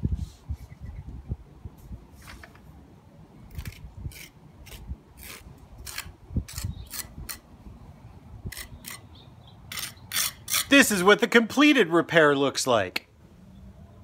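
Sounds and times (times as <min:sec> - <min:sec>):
putty knife scraping: 0:03.5 - 0:07.4, 0:09.7 - 0:10.8.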